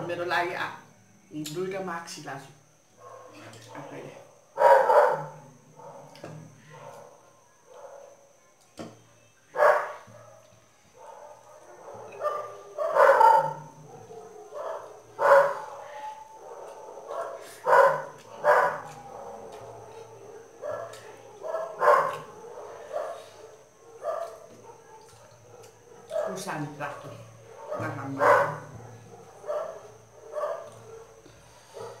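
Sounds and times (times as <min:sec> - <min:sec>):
dog barking: 0:03.0 - 0:03.4, 0:04.6 - 0:07.1, 0:07.7 - 0:08.2, 0:09.6 - 0:26.5, 0:27.4 - 0:32.0.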